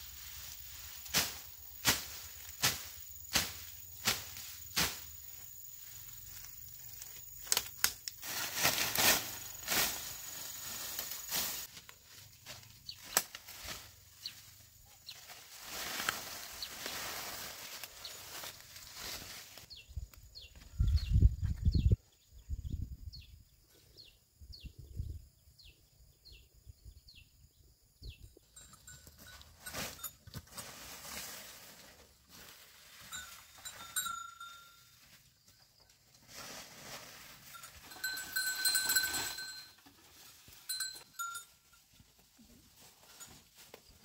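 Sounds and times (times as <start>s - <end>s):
leafy branches rustling: 0.0s - 19.9s, 29.1s - 41.6s.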